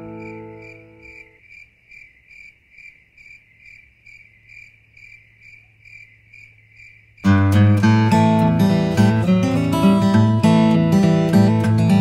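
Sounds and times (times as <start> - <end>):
cricket chirping: 0.0 - 7.6.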